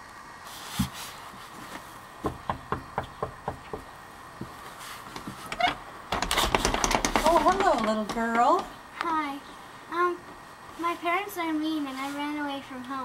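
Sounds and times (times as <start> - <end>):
knocking on wooden door: 2.2 - 3.9, 6.1 - 8.7.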